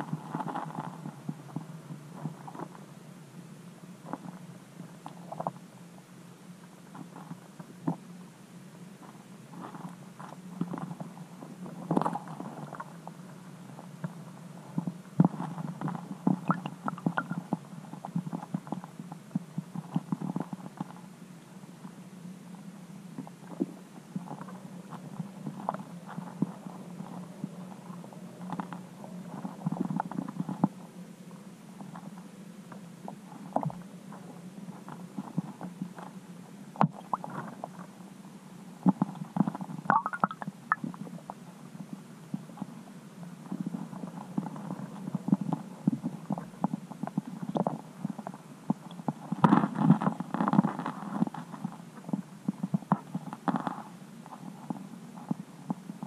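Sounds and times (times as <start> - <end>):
low underwater hum: 0.0 - 56.0
soft underwater knocks and clicks: 38.8 - 41.4.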